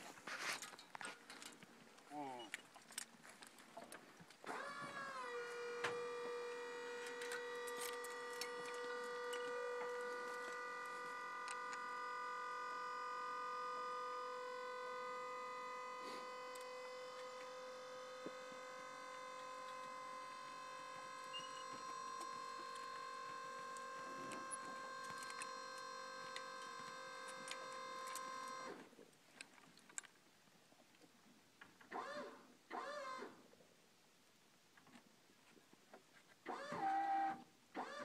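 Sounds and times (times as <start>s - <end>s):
small motor whining: 4.4s - 28.8s, 31.9s - 33.4s, 36.4s - 38.0s.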